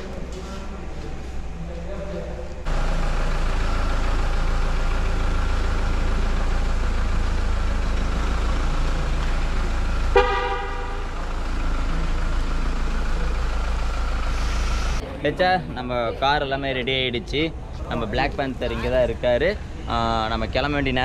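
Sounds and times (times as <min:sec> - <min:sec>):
car horn toot: 0:09.9 - 0:11.4.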